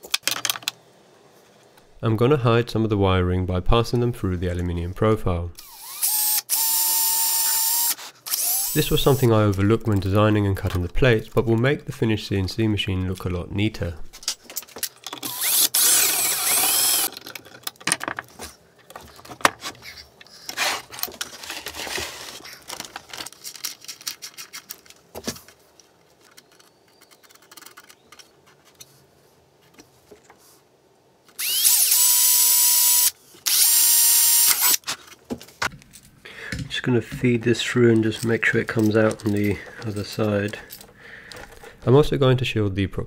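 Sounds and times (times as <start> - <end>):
clicks and handling noise: 0.0 - 0.8, 8.8 - 12.0, 14.0 - 30.4, 34.5 - 42.1
power drill running: 5.6 - 9.2, 15.2 - 17.1, 31.4 - 34.8.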